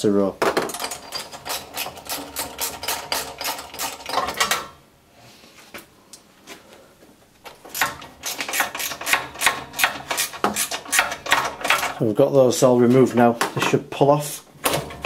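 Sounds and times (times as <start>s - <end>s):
ratchet wrench clicking: 7.7s - 12.0s.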